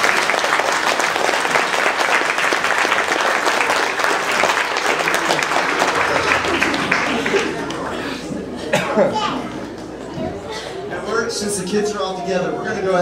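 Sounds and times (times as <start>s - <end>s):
crowd applauding: 0.0s - 8.8s.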